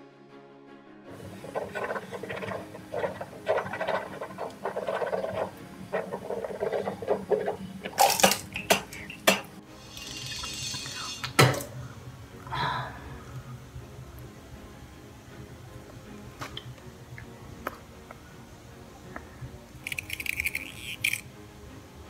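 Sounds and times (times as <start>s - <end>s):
handling clicks and knocks: 6.0s - 9.5s
hiss: 9.0s - 11.5s.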